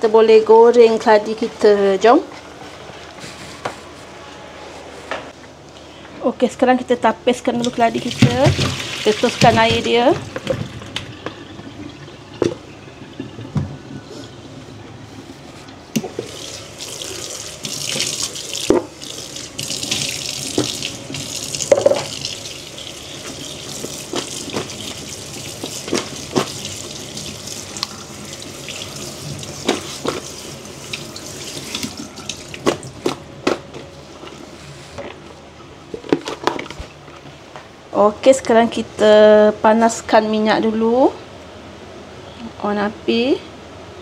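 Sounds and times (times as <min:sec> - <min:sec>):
tap water splashing into sink: 0:07.6 - 0:11.7, 0:19.6 - 0:22.4
plastic colander knocks: 0:21.7 - 0:22.1.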